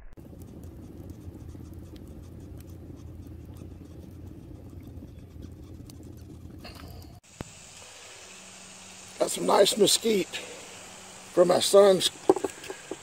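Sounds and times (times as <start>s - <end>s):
stove draft rumble: 0.2s - 7.2s
wood fire crackling: 0.2s - 13.0s.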